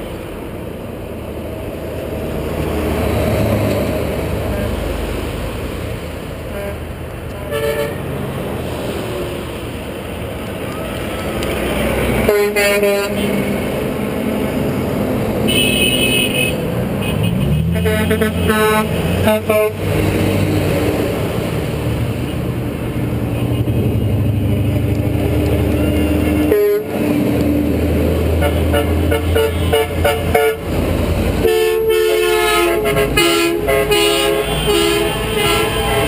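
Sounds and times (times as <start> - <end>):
truck engines droning: 0.0 - 36.0
truck horn toots: 6.5 - 8.1, 12.2 - 13.5, 15.5 - 19.8, 25.6 - 27.1, 28.3 - 30.7, 31.4 - 36.0.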